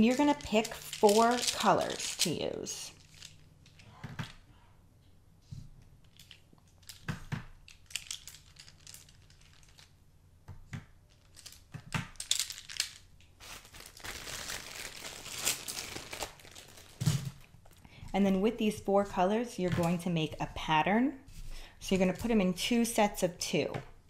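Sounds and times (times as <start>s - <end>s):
plastic bag crinkling: 0.0s - 3.8s, 6.0s - 10.0s, 11.1s - 17.9s
pencils clicking together: 0.0s - 4.4s, 6.1s - 9.9s.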